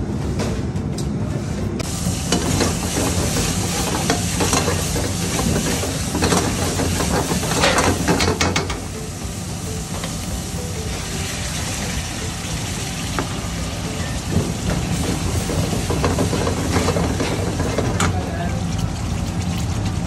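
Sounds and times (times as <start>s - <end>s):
spices sizzling in hot oil: 1.8s - 17.8s.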